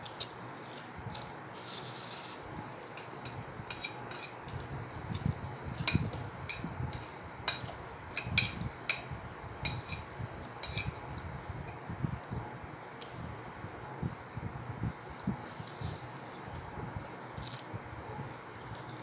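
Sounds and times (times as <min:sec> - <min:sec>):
soft wet chewing: 0:15.3 - 0:17.7.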